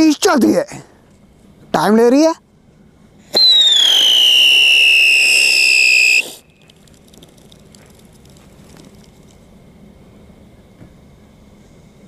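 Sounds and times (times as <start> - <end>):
firework shrill whistle: 3.3 - 6.6
sparks crackling: 3.4 - 9.4.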